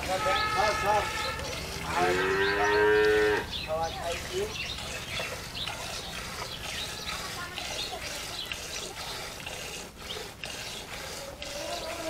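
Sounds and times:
milk squirting into a pail: 0.0 - 2.0, 3.7 - 12.0
cow mooing: 0.1 - 3.5.

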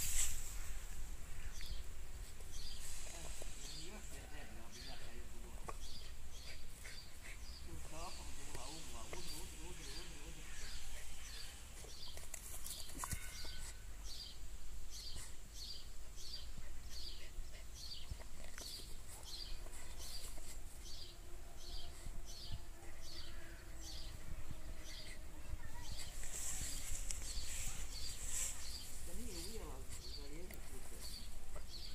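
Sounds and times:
brief hiss: 0.0 - 1.1.

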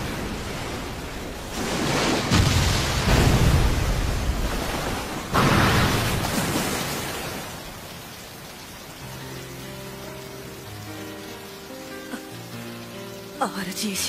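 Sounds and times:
soft music: 8.8 - 14.0.

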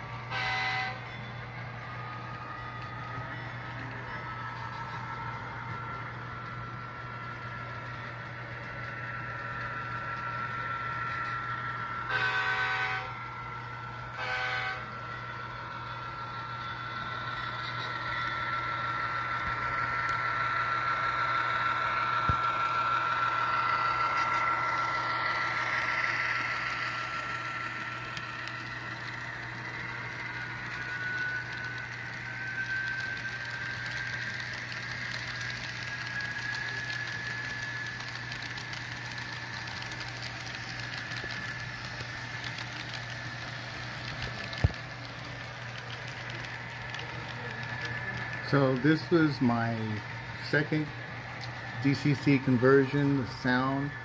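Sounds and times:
thin steady whine: 0.0 - 54.0
model locomotive horn blasts: 0.2 - 1.2, 12.0 - 13.2, 14.1 - 15.0.

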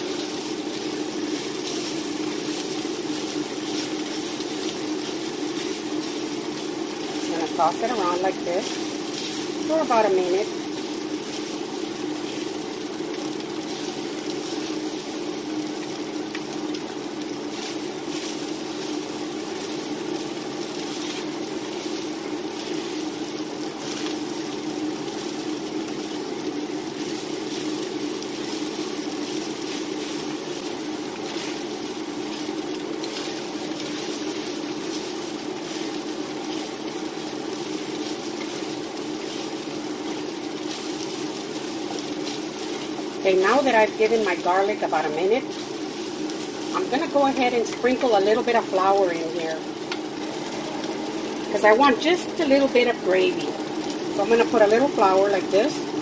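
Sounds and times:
wooden spatula scraping: 0.0 - 12.6, 27.0 - 48.2
food sizzling in a skillet: 0.0 - 56.0
steady low hum: 0.0 - 56.0.

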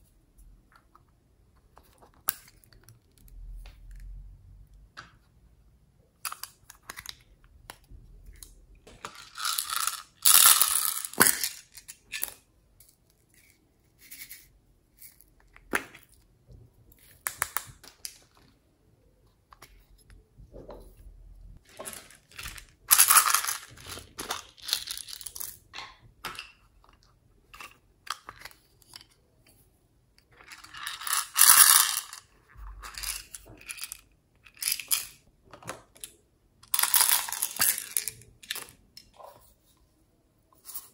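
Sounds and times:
glitter rattling in plastic case: 21.6 - 25.4.

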